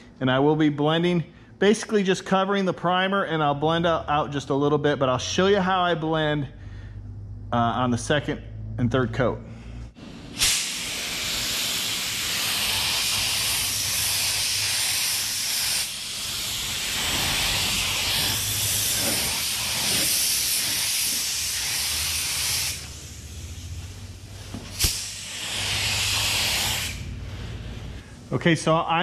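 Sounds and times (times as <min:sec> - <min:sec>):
spray gun hissing: 0:10.0 - 0:28.0
spray gun click: 0:24.7 - 0:25.1.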